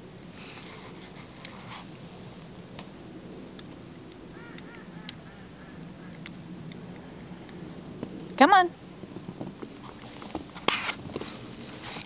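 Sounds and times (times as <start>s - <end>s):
sharp clicks: 3.6s - 5.3s, 6.1s - 7.6s
geese honking: 4.3s - 6.2s.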